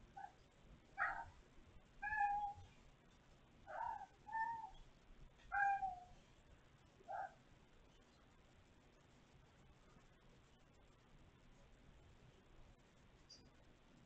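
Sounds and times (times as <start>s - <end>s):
kitten meowing: 2.0s - 2.6s, 5.5s - 6.1s.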